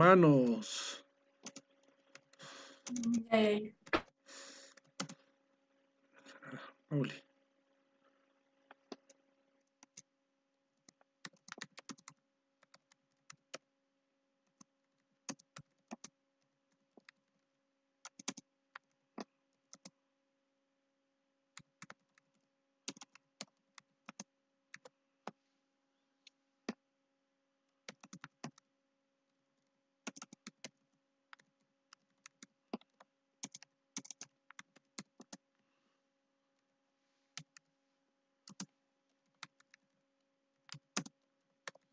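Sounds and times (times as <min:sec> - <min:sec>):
faint electrical hum: 0:00.0 - 0:41.9
keyboard keystroke clicks: 0:10.8 - 0:13.6, 0:18.0 - 0:19.9, 0:30.0 - 0:35.4, 0:38.4 - 0:38.7.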